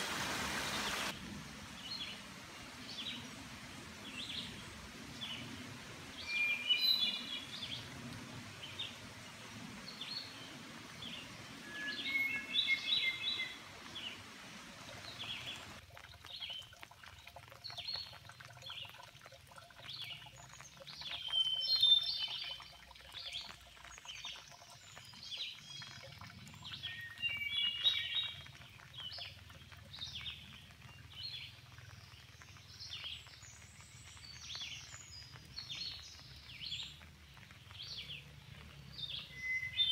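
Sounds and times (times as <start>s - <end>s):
background hiss: 0.0s - 15.8s
songbird song phrase: 4.0s - 7.9s, 8.6s - 16.7s, 17.7s - 39.9s
birds chirping: 6.1s - 7.9s, 9.8s - 15.8s, 24.9s - 39.9s.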